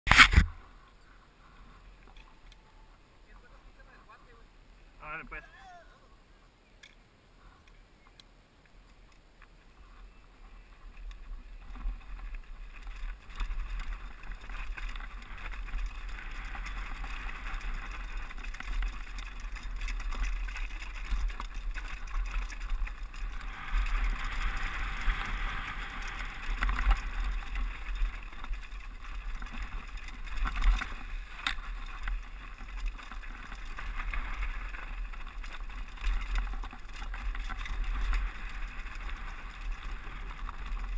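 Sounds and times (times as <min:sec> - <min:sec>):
bike tyres crunching on gravel: 0:09.5 - 0:40.9.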